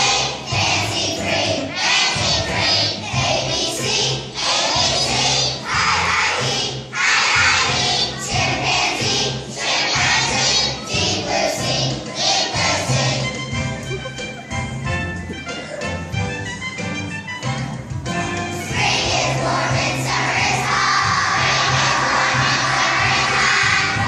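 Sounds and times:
children's choir singing: 0:00.0 - 0:14.6, 0:18.3 - 0:24.0
musical accompaniment with bass: 0:00.0 - 0:24.0.

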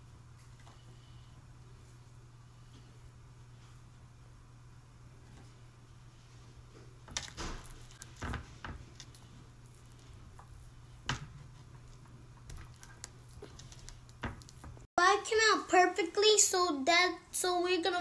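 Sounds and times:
low steady hum: 0:00.0 - 0:18.0
hands patting dough: 0:06.8 - 0:14.9.

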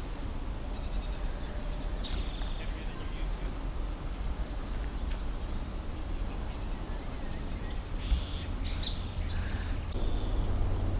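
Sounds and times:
birds chirping: 0:00.0 - 0:10.9
steady low rumble: 0:02.7 - 0:10.9.

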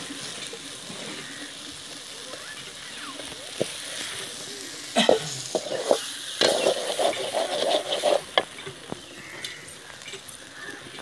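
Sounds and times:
oil sizzling: 0:00.0 - 0:11.0
metal skimmer scraping a pan: 0:05.0 - 0:08.7.

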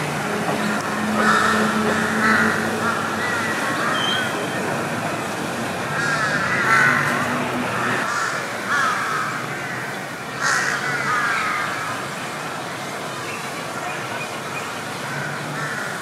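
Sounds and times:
crows cawing: 0:00.9 - 0:04.3, 0:05.9 - 0:12.0, 0:15.1 - 0:16.0.

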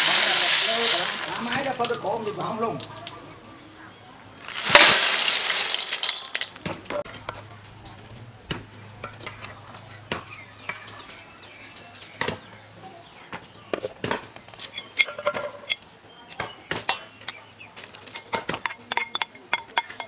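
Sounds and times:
shells rattling into metal bowl: 0:04.4 - 0:06.6
shells and spoon clinking on metal: 0:04.5 - 0:06.6.

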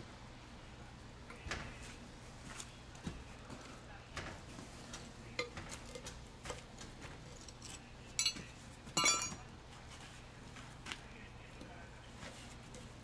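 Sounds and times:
metal striking stone clinks: 0:09.0 - 0:09.4.

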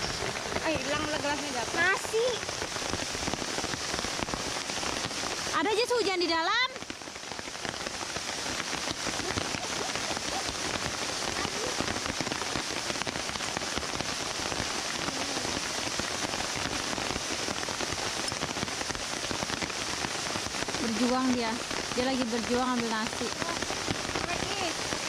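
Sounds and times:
rain falling: 0:00.0 - 0:25.0.

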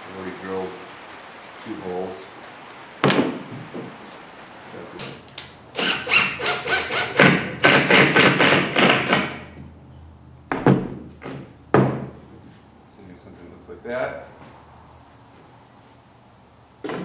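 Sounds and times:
cordless drill drilling into wood: 0:05.8 - 0:09.4.

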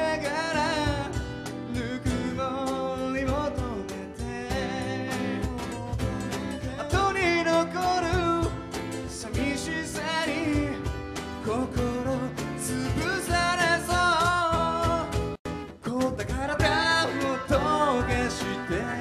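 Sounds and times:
acoustic guitar: 0:00.0 - 0:19.0
hand percussion: 0:00.0 - 0:19.0
upright bass: 0:00.0 - 0:19.0
person singing: 0:11.5 - 0:19.0.

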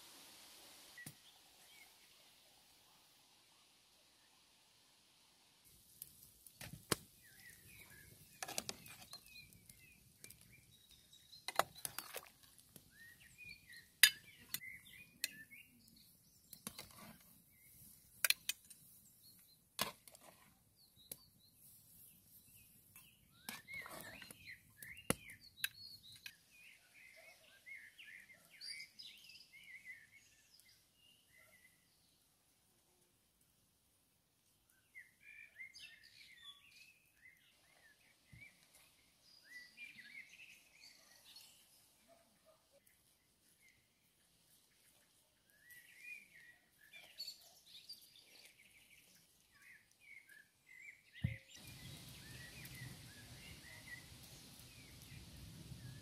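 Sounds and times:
small birds chirping: 0:06.0 - 0:32.3, 0:34.4 - 0:56.0
metal utensils clinking on pots: 0:14.0 - 0:14.7.

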